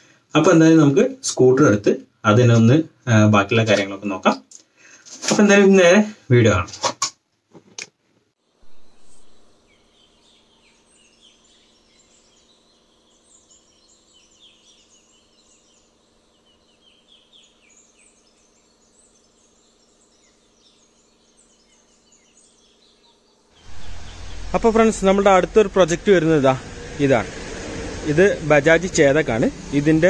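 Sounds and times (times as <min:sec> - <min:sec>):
small birds chirping: 0:08.5 - 0:30.0
low steady hum: 0:08.6 - 0:30.0.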